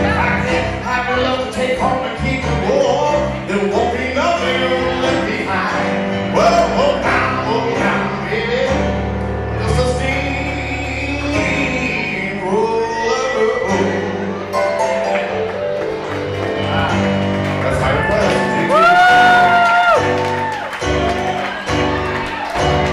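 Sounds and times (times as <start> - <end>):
low bass notes: 0.0 - 14.6, 15.8 - 22.9
person singing: 0.0 - 15.5, 16.4 - 20.2
grand piano music: 0.0 - 22.9.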